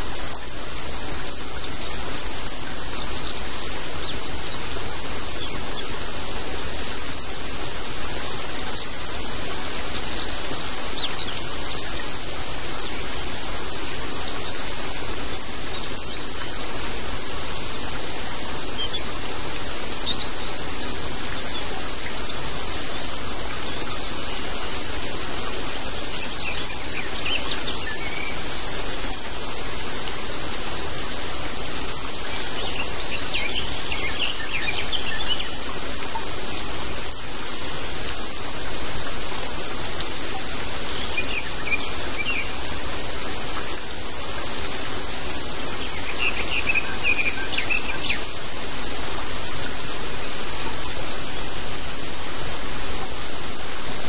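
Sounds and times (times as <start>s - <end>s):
steady rain: 0.0s - 54.0s.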